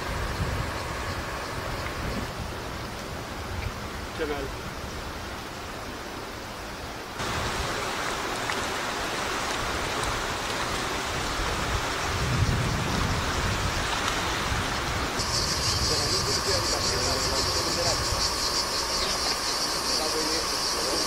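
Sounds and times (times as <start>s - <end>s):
wind on microphone: 0.0s - 4.0s, 11.0s - 19.0s
water rushing and splashing: 0.0s - 21.0s.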